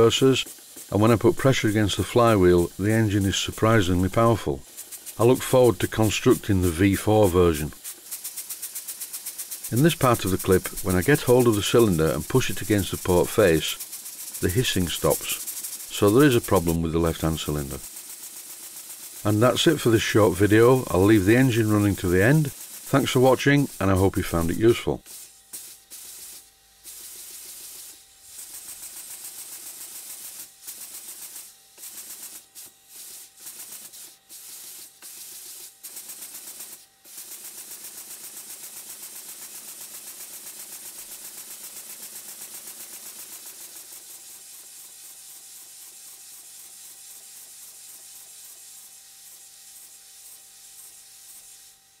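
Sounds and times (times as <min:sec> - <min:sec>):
model steam engine running on air: 0:00.0 - 0:52.0.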